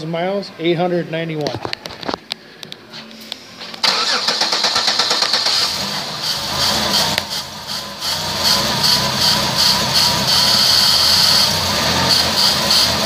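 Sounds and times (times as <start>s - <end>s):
car starter cranking: 3.6s - 9.7s
car engine running: 3.8s - 13.0s.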